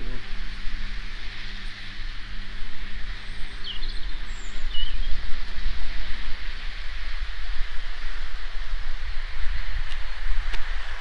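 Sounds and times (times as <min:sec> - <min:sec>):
low motor hum: 0:00.0 - 0:11.0
low rumble and hiss: 0:00.0 - 0:11.0
bird chirps: 0:03.1 - 0:05.7.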